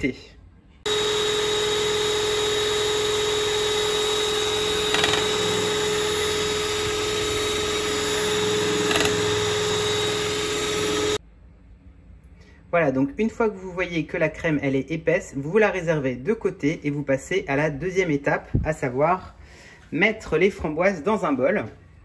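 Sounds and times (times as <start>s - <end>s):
electric hand mixer running: 0.8s - 11.2s.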